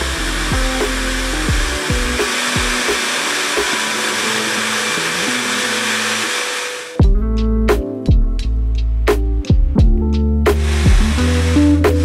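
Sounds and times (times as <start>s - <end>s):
hair dryer blowing: 0.0s - 7.0s, 10.5s - 12.0s.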